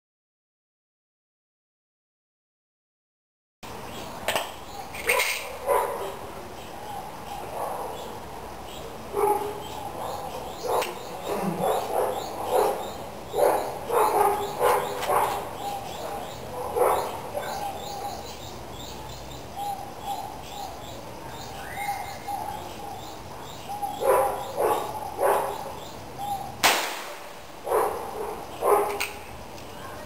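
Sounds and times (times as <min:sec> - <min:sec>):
birds chirping: 0:03.6 - 0:30.0
gunshot crack: 0:26.6 - 0:27.3.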